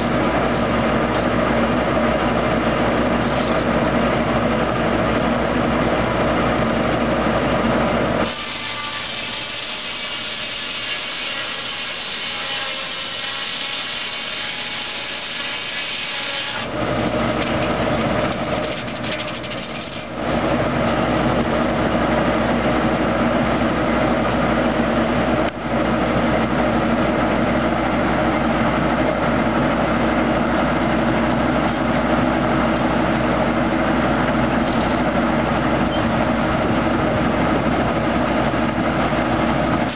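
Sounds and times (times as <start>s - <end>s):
engine hum: 0.0s - 8.5s, 16.4s - 39.9s
circular saw blade cutting log: 3.2s - 3.8s, 8.1s - 20.2s.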